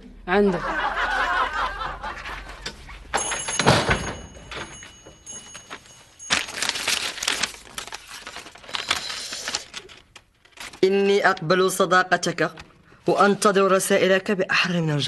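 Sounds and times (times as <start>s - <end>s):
paper rustling and crinkling: 4.6s - 11.5s.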